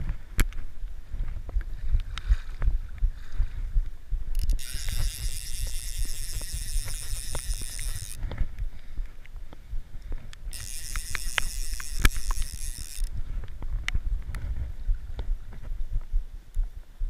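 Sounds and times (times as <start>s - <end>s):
dripping clicks: 10.6s - 13.1s.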